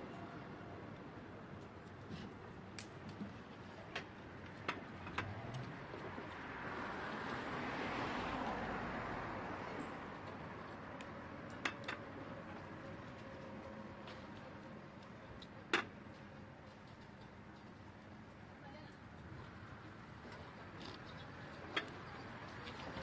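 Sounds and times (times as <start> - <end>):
street traffic: 0.0 - 23.0
vehicle passing: 4.9 - 14.3.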